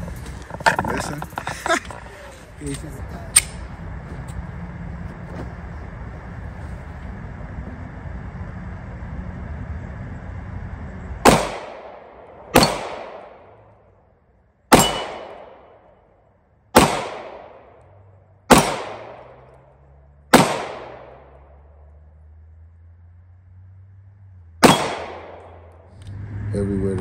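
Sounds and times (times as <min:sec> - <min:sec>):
low rumble: 0:00.0 - 0:27.0
pistol shots: 0:11.2 - 0:13.7, 0:14.7 - 0:15.9, 0:16.7 - 0:19.6, 0:20.3 - 0:21.7, 0:24.6 - 0:25.9.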